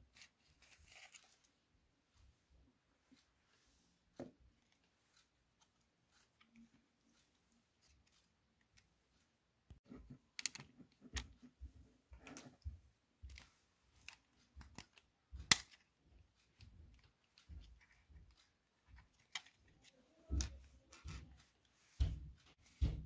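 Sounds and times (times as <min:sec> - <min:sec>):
plastic parts clicking: 0:10.3 - 0:11.4, 0:13.3 - 0:15.9, 0:16.5 - 0:21.2.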